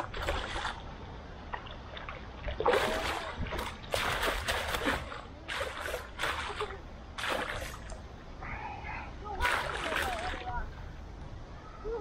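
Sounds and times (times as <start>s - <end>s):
fish splashing in pond: 1.6s - 8.0s, 9.4s - 10.5s.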